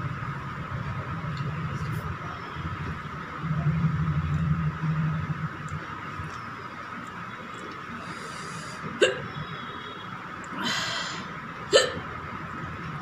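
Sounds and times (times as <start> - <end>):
woman hiccuping: 9.0 - 9.3, 11.7 - 12.0.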